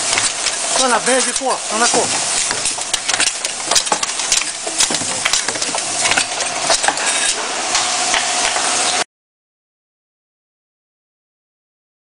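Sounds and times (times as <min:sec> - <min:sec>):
machine metallic clatter and hiss: 0:00.0 - 0:09.0.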